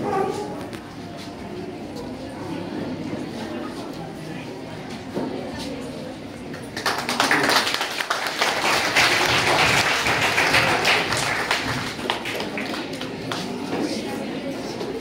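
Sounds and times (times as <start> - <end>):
group clapping: 6.6 - 13.7.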